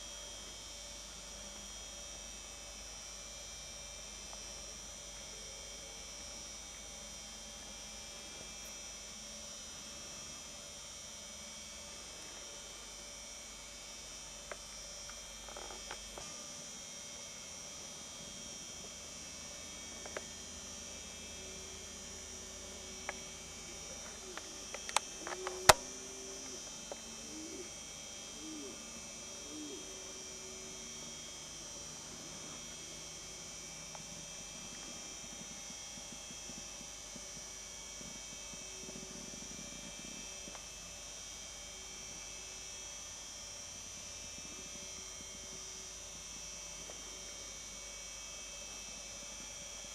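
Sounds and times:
low hum: 0:15.9 - 0:35.6
insects chirring: 0:21.4 - 0:31.1.

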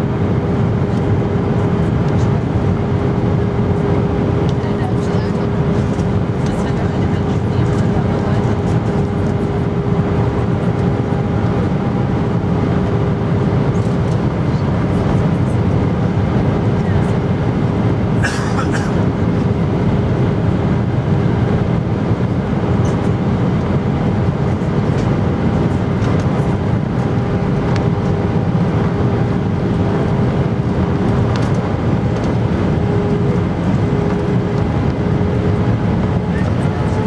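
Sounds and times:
airflow rushing in aircraft cabin: 0:00.0 - 0:37.0
jet engine hum: 0:00.0 - 0:37.0.

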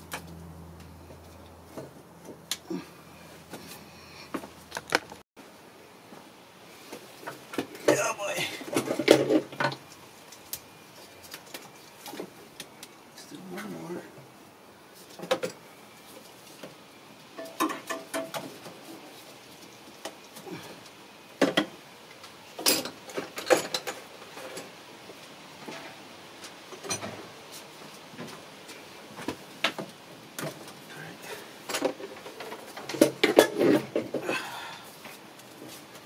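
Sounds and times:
metal tools and bolts clinking: 0:22.6 - 0:24.6.

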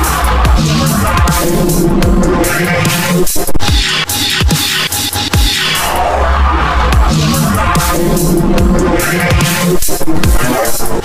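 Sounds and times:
noisy hi-hat hits: 0:00.0 - 0:06.0, 0:07.0 - 0:10.6
low pitched synth notes: 0:00.3 - 0:03.8, 0:05.8 - 0:10.5
deep bass note: 0:00.4 - 0:03.2, 0:05.8 - 0:09.5
kick drum with falling pitch: 0:07.0 - 0:09.4.

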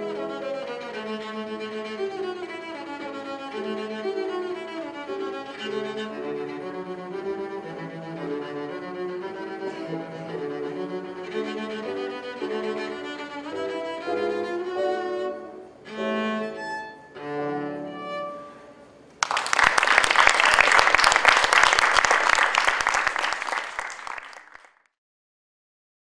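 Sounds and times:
piano accompaniment: 0:00.0 - 0:18.6
cello: 0:00.0 - 0:19.0
audience applause: 0:19.2 - 0:24.8.

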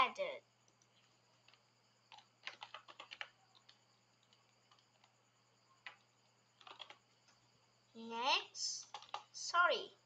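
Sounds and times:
typing on computer keyboard: 0:01.5 - 0:05.2, 0:05.8 - 0:07.0, 0:08.8 - 0:09.4.

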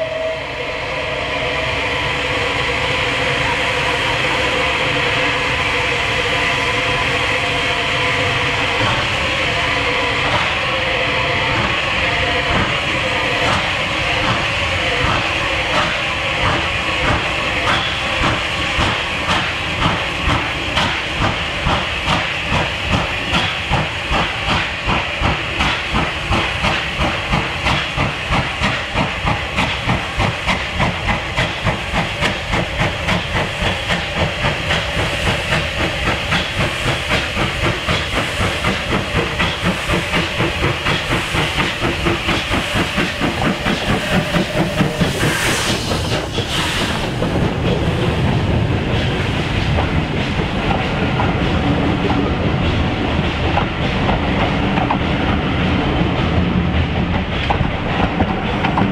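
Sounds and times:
steam hiss: 0:00.0 - 0:58.9
steam locomotive exhaust beats: 0:00.0 - 0:58.9.

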